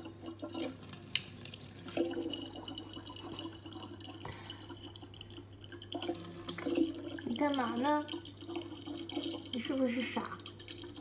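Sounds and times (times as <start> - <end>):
tap water trickling into jug: 0.0 - 11.0.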